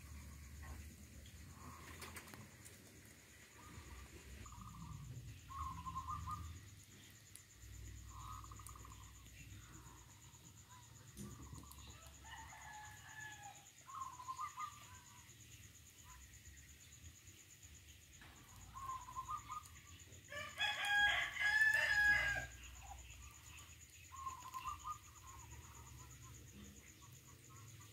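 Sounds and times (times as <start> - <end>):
rooster crowing: 11.9 - 13.7, 20.3 - 22.7.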